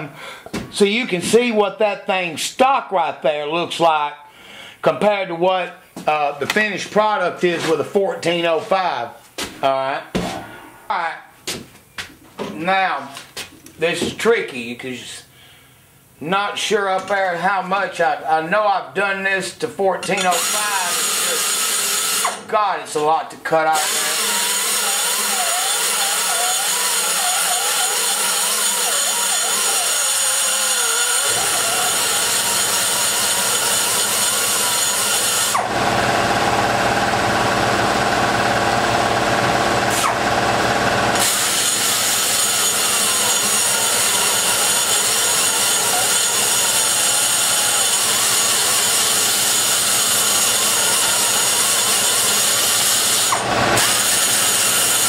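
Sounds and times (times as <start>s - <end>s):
grinding metal: 20.1s - 22.4s, 23.7s - 55.0s
die grinder whining: 20.1s - 22.5s, 23.6s - 55.0s.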